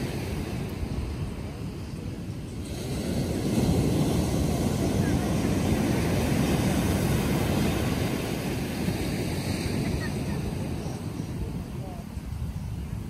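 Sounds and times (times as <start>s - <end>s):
ocean surf breaking: 0.0s - 13.0s
wind on microphone: 0.0s - 13.0s.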